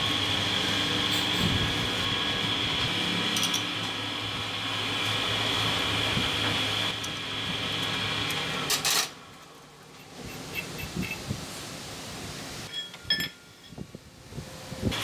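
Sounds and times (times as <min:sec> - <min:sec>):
metal lathe humming and whining: 0:00.0 - 0:08.7.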